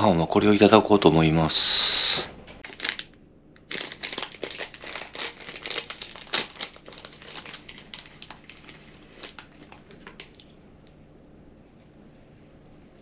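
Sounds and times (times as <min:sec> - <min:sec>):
plastic wrapper crinkling: 0:02.6 - 0:10.6.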